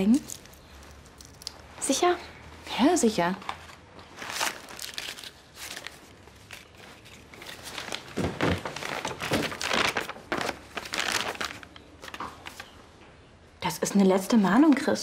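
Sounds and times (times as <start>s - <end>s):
paper rustling and crinkling: 3.3s - 12.8s.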